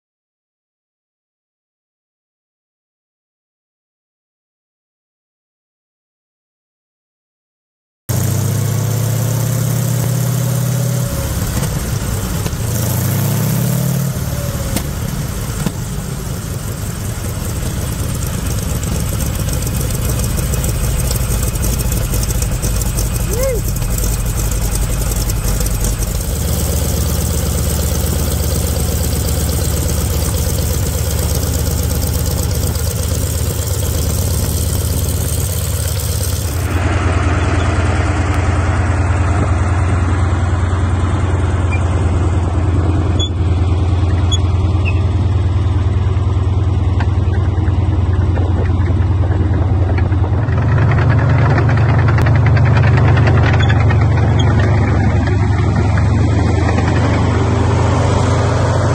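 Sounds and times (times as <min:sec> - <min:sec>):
radial engine droning: 0:13.9 - 0:43.6.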